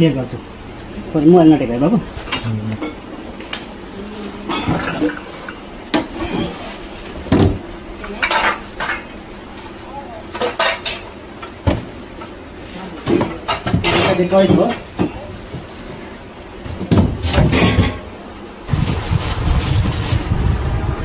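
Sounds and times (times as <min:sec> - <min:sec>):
bedding rustling: 0:18.6 - 0:20.4.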